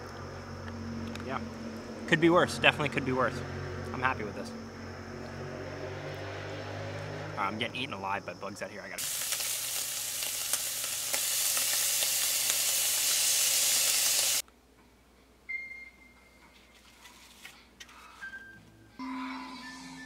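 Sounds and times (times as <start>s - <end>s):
meat sizzling in frying pan: 9.0s - 14.4s.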